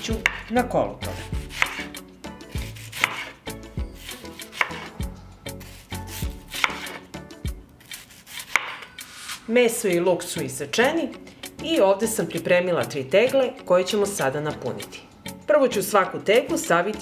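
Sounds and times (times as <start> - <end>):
knife chopping on cutting board: 0.0 - 1.9, 2.6 - 3.4, 4.0 - 4.9, 5.6 - 7.1, 7.8 - 9.4.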